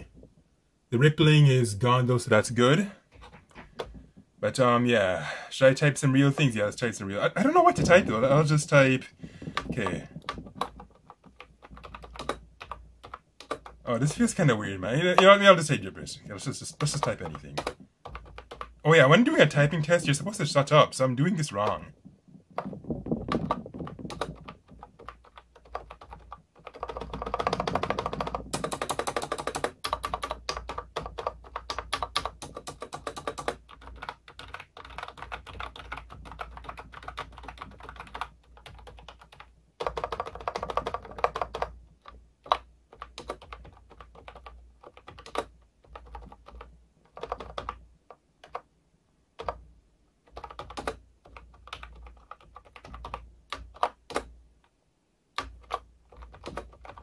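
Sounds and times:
keyboard typing clatter: 3.1 - 4.0, 7.5 - 8.7, 9.4 - 14.3, 16.8 - 18.8, 22.5 - 47.8, 50.3 - 54.3, 55.4 - 57.0.

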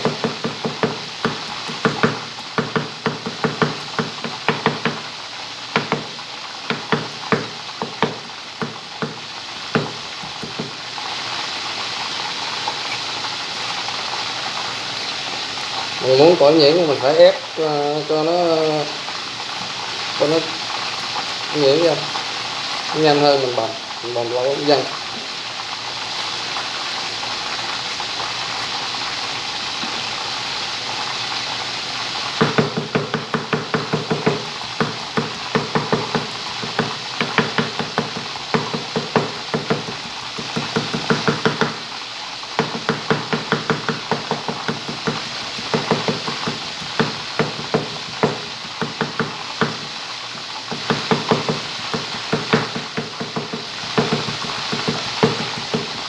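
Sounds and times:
cleaver chopping on wooden block: 0.0 - 5.0, 5.7 - 6.1, 6.7 - 10.7, 32.4 - 41.8, 42.6 - 49.9, 50.7 - 56.0
steady hiss: 0.0 - 56.0.

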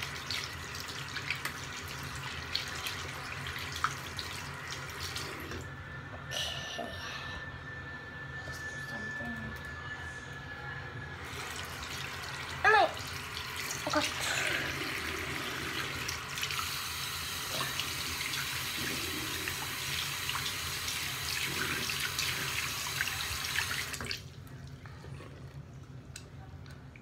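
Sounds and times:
water running from sink tap: 0.0 - 5.7, 11.2 - 24.4.

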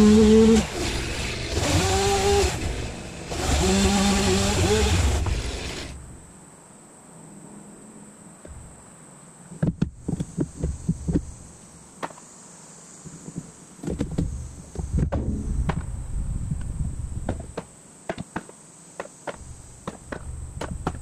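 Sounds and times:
chainsaw engine running: 0.0 - 6.0
high insect drone: 0.0 - 21.0
wooden timbers knocking and clattering: 17.2 - 21.0.

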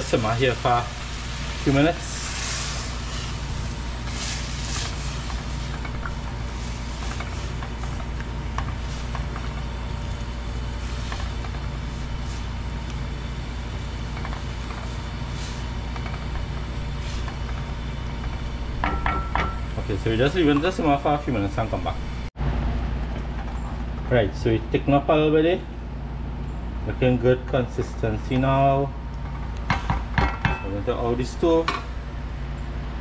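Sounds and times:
pot simmering: 0.0 - 24.3.

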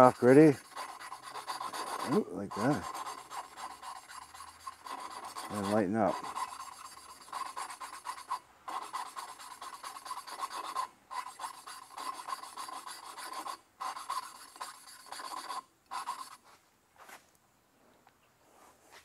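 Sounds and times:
gritty rasp of valve grinding: 0.0 - 16.4.

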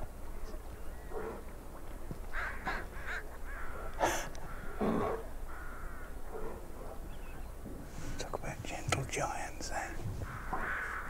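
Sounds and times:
harsh animal calls: 10.2 - 11.0.

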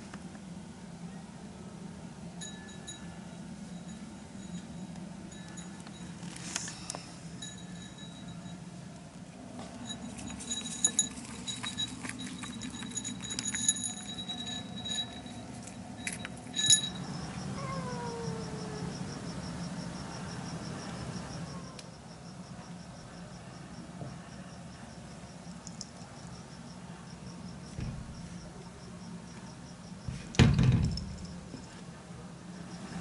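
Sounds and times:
metallic jingles and clicks: 2.4 - 8.6, 9.6 - 17.4
cat meowing: 17.4 - 19.0.

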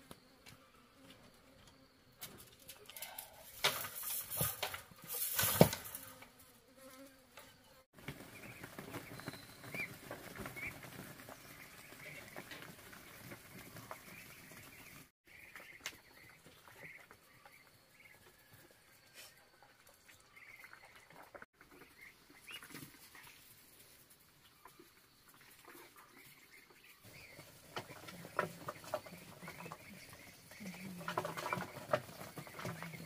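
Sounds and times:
clicks and rustling of birds: 1.6 - 6.4, 7.4 - 18.8, 19.4 - 33.0
ducklings peeping: 8.0 - 18.3, 20.0 - 23.7, 24.5 - 33.0.

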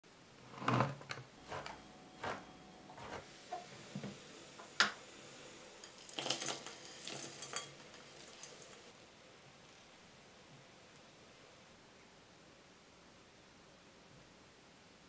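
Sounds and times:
knife chopping on wooden board: 1.4 - 3.2.

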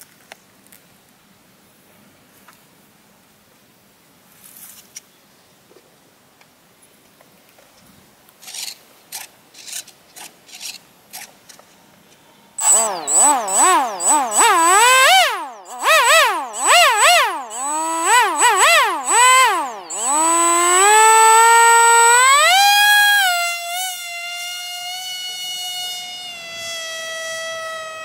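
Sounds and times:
brushless motor whine: 12.6 - 28.0
steady high whistle: 12.6 - 28.0.

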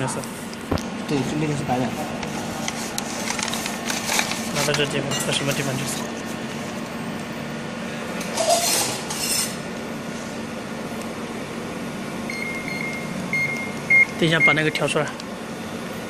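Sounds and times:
laser marking machine humming: 0.0 - 16.0
plastic bag rustling: 2.4 - 5.9.

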